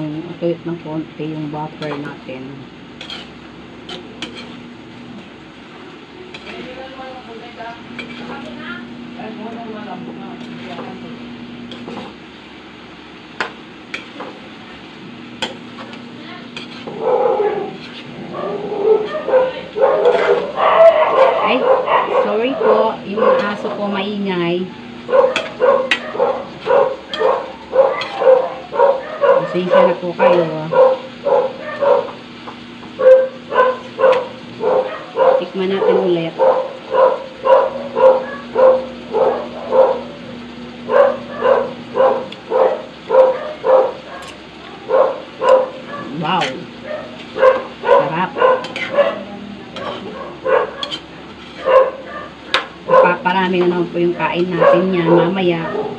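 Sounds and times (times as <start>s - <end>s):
dog yipping and barking: 16.8s - 23.6s, 25.1s - 32.2s, 33.0s - 40.1s, 40.9s - 46.2s, 46.8s - 49.2s, 50.1s - 51.0s, 51.6s - 53.2s, 54.5s - 55.9s.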